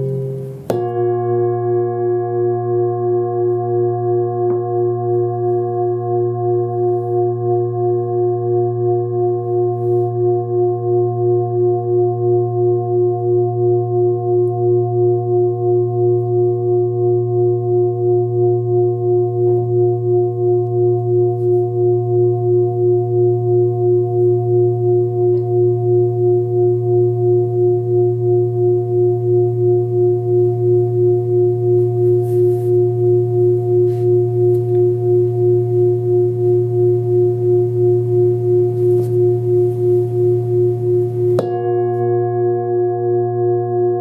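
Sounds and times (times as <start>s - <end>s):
singing bowl humming: 0.0s - 44.0s.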